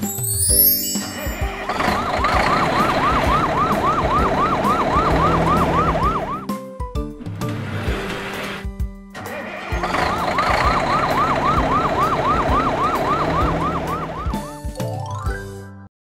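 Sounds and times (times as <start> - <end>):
rising musical sweep: 0.8 - 6.5
truck rumbling: 1.4 - 14.6
cartoon siren yelping: 1.7 - 6.5, 9.9 - 14.6.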